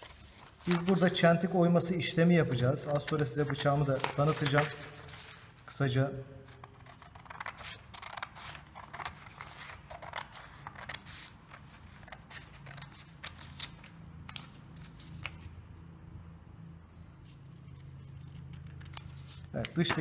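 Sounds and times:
scissors snipping paper: 17.6s - 20.0s.

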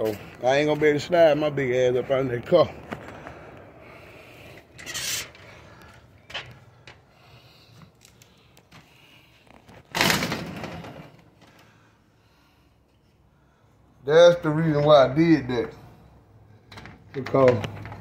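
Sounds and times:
door opening and shutting: 9.8s - 11.3s.

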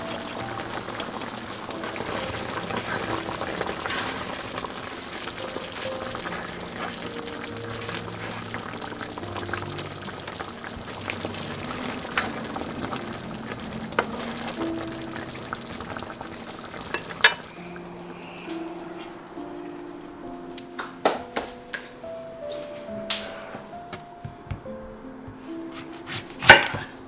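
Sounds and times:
sauce bubbling in a frying pan: 0.0s - 18.4s
soft background music: 0.0s - 27.0s.

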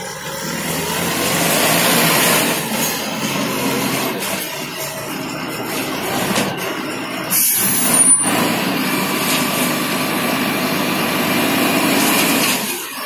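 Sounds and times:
high squeal: 0.0s - 9.7s
concrete mixer engine running: 0.0s - 13.0s.

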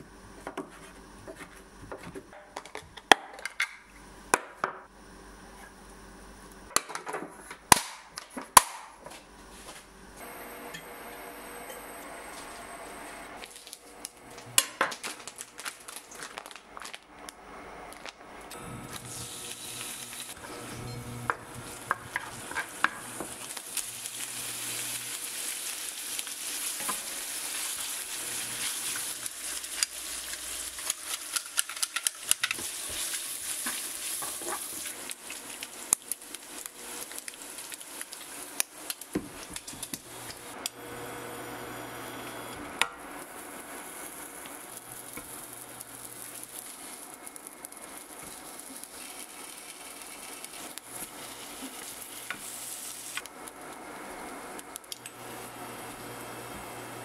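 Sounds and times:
plastic packaging rustling: 13.4s - 17.3s, 17.9s - 18.2s, 25.0s - 40.0s
bacon sizzling in frying pan: 18.8s - 41.2s, 43.0s - 56.9s
wooden spatula scraping pan: 32.6s - 35.0s.

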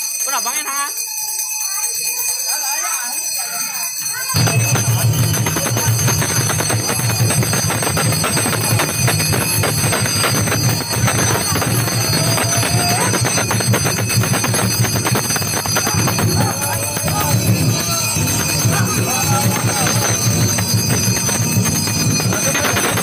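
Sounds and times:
brass hand bell shaken rapidly: 0.0s - 23.0s
loud low din: 4.4s - 23.0s.

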